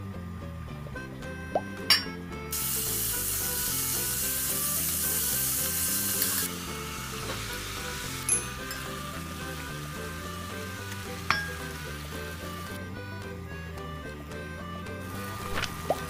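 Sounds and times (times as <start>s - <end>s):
soft background music: 0.0s - 16.0s
beef sizzling in oil: 2.5s - 12.8s, 15.1s - 16.0s.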